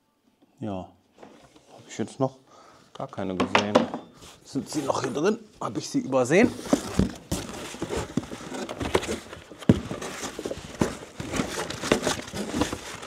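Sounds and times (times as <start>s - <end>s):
packaging rustling and crinkling: 6.1s - 13.0s.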